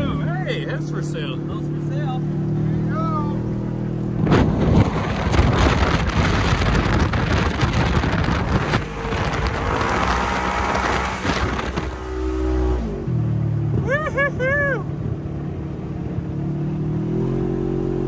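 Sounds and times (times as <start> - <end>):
vehicle engine: 0.0 - 18.0
wind buffeting microphone: 4.1 - 12.2.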